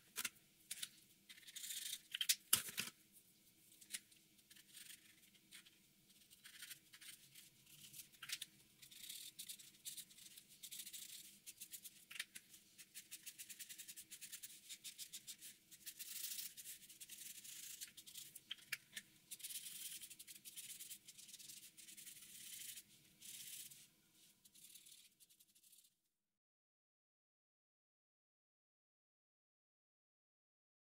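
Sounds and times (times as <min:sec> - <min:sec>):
marker scratching on paper: 0:04.5 - 0:23.8, 0:24.4 - 0:25.8.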